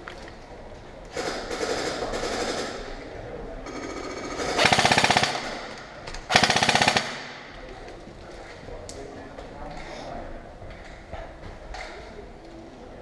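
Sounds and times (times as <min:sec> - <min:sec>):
airsoft rifle full-auto bursts: 0:03.7 - 0:05.7, 0:06.3 - 0:07.3.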